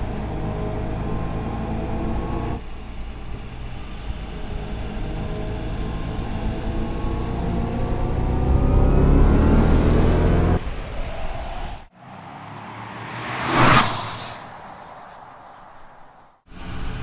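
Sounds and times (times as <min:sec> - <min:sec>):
electric car rising tones: 0:04.1 - 0:11.4
car passing whoosh: 0:08.4 - 0:16.4.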